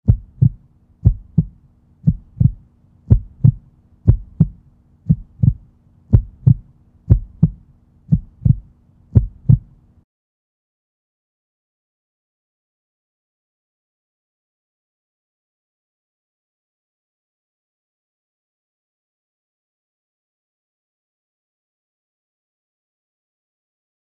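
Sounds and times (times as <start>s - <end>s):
heartbeat thumps: 0.0s - 9.8s
faint low hum: 0.1s - 10.0s.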